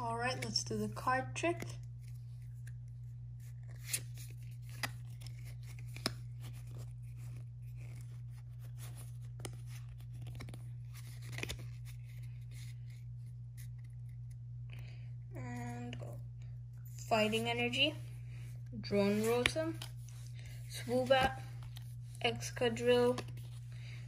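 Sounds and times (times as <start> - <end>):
trading cards sliding: 18.6 - 24.0.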